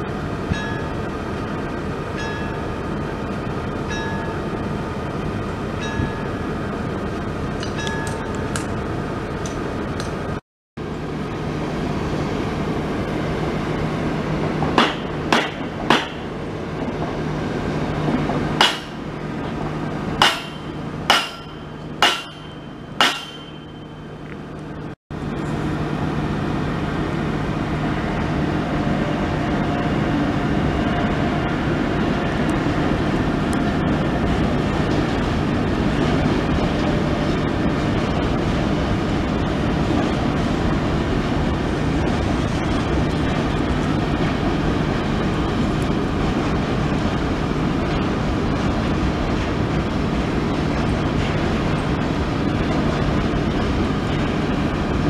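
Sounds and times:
freight train rolling on rails: 0.0 - 55.0
ringing metallic knocks: 18.6 - 19.0, 20.2 - 24.1.

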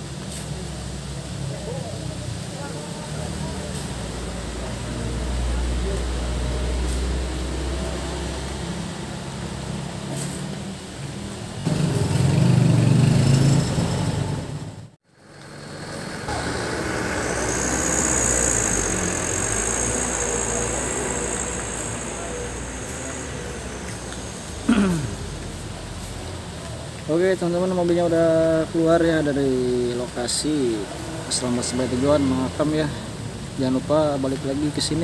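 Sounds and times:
diesel truck engine pulling away: 0.4 - 26.9.

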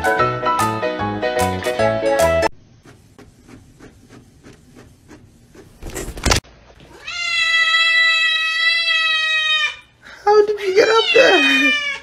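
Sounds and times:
cat meowing: 6.9 - 9.9, 10.8 - 12.0.

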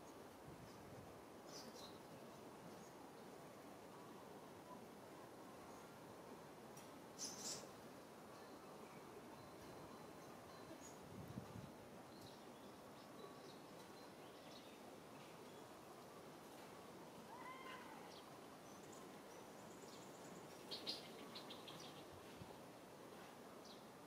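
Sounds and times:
faint high chirps and clicks: 13.8 - 14.0.

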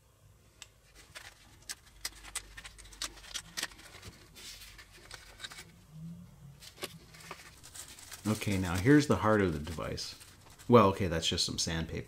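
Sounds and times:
plastic bag crinkling: 6.6 - 11.0.

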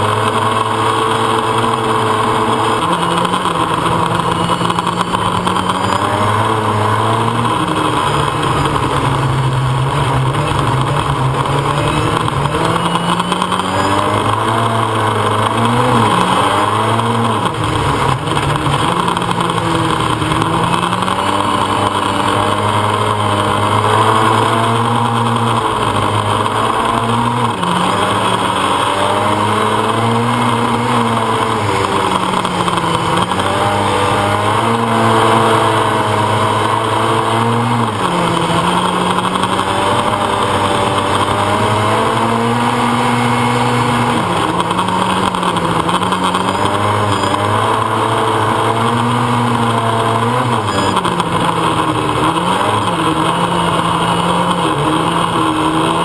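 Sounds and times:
race car engine revving: 0.0 - 56.0.

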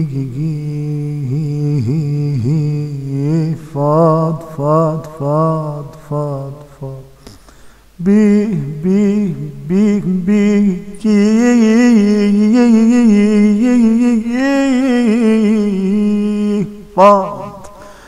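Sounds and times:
man singing unaccompanied: 0.0 - 7.2, 7.9 - 18.0.

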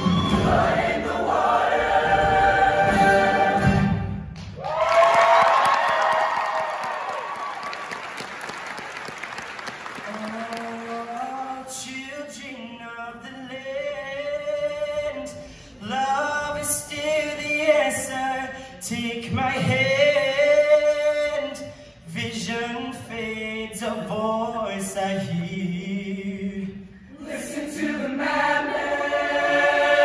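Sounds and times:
choir singing in harmony: 0.0 - 4.3, 26.9 - 30.0.

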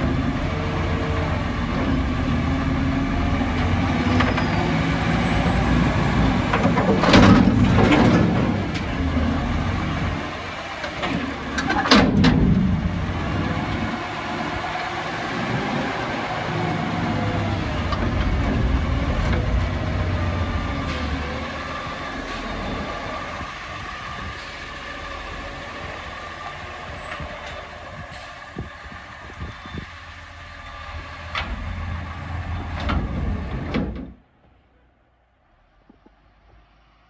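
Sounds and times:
truck engine revving: 0.0 - 29.4
metal clanks and knocks: 6.5 - 8.9, 10.9 - 12.8.

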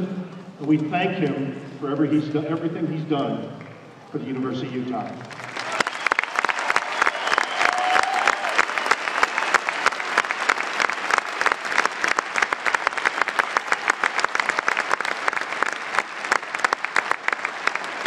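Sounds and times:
crowd applauding: 5.2 - 18.0.

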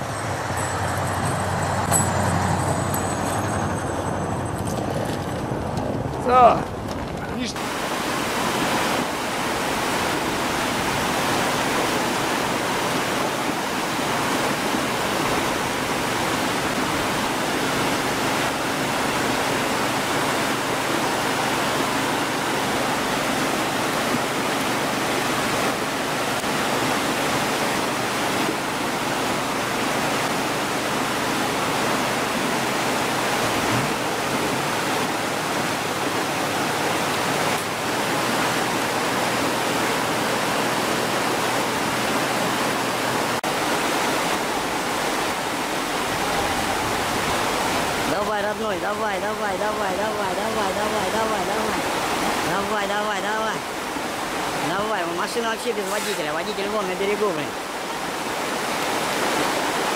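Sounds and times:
turbulent river water rushing: 0.0 - 59.9.

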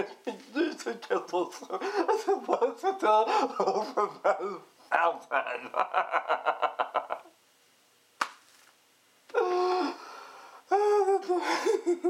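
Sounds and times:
man laughing: 0.0 - 4.7, 5.3 - 7.4, 10.7 - 12.0.

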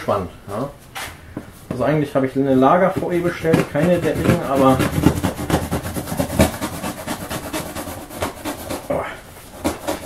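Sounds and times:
knife slitting packing tape: 9.5 - 10.0.

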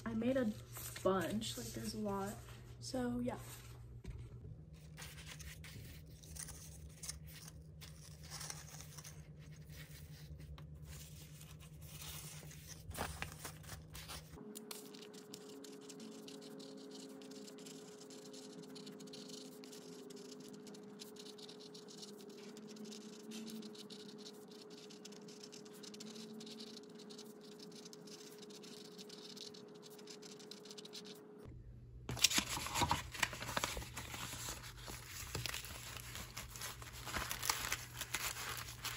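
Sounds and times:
paper rustling: 0.4 - 2.5, 4.8 - 31.1, 32.1 - 38.9
bubble mailer crinkling: 10.9 - 31.0, 32.1 - 38.9
pen writing on card: 14.7 - 31.2.

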